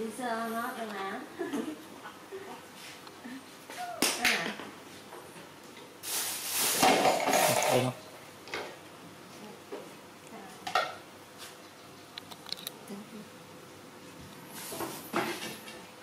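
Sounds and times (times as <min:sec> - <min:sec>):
dishes and utensils clattering: 0:06.8 - 0:07.9.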